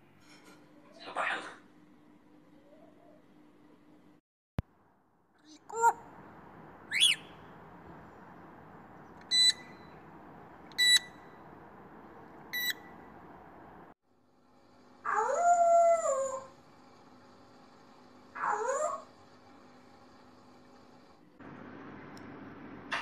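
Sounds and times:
parrot imitating beeps: 6.9s - 7.3s, 9.3s - 9.9s, 10.7s - 11.2s, 12.5s - 12.9s
parrot whistling: 6.9s - 7.5s, 9.2s - 10.0s, 10.7s - 11.3s, 12.5s - 12.9s
parrot imitating wolf howl: 15.0s - 16.5s, 18.4s - 19.1s.

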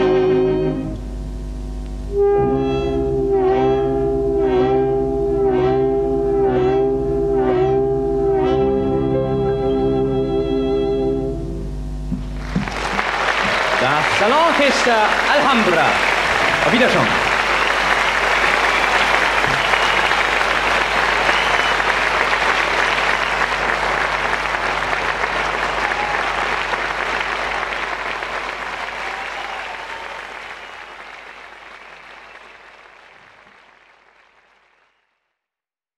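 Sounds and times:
audience applauding: 12.2s - 35.2s.

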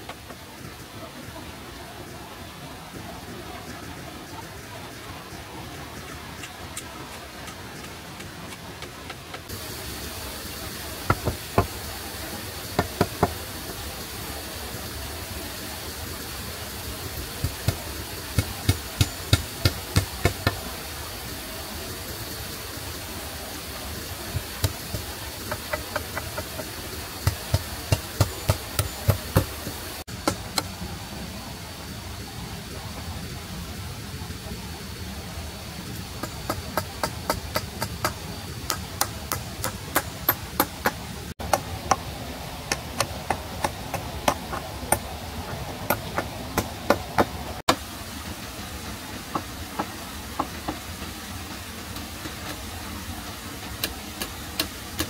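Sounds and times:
steady background hiss: 0.0s - 55.0s
hand tool striking wood: 11.1s - 11.7s, 24.4s - 30.7s, 36.2s - 42.1s, 42.7s - 47.8s.

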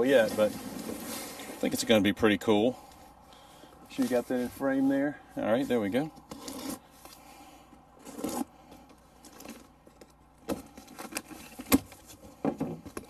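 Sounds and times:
cardboard scraping and rustling: 0.0s - 1.9s, 5.6s - 7.2s, 8.0s - 8.6s, 9.2s - 13.0s
knife slicing packing tape: 6.3s - 6.8s.

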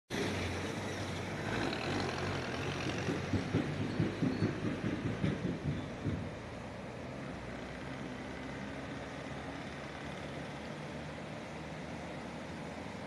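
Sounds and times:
low irregular thumps: 2.8s - 6.7s
river rushing over stones: 5.9s - 13.0s.

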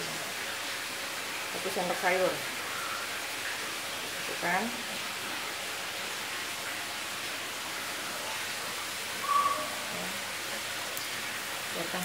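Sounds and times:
low hiss from frying pan: 5.7s - 12.0s.

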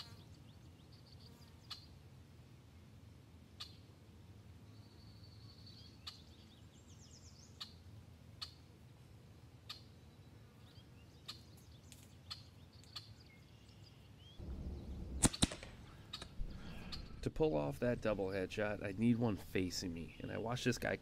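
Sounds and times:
small ticks: 11.3s - 13.1s
air rifle shots: 14.4s - 17.3s
low rumble: 14.4s - 19.0s
faint bird chirps: 15.8s - 17.2s.

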